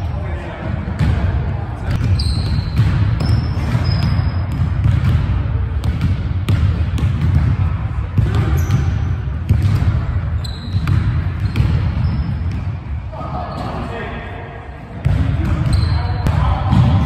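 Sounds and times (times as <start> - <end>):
players' voices: 0.0 - 6.4, 7.0 - 10.4, 11.0 - 17.0
sneaker squeaks: 1.9 - 4.6, 8.3 - 13.9, 15.0 - 16.9
basketball bouncing on hardwood: 1.9 - 7.6.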